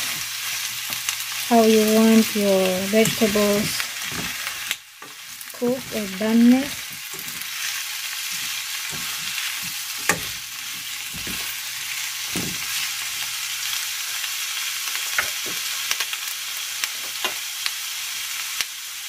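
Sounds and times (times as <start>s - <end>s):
vegetables sizzling in a wok: 0.0s - 19.0s
spatula scraping a pan: 3.0s - 12.9s.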